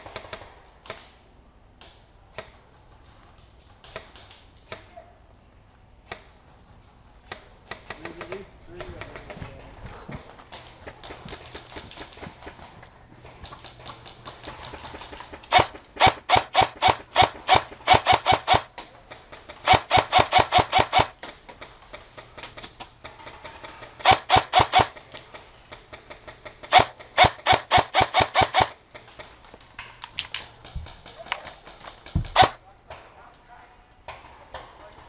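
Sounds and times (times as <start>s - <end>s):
electric airsoft rifle firing shots: 0.0s - 1.2s, 7.2s - 9.4s, 13.3s - 29.4s, 30.4s - 32.6s.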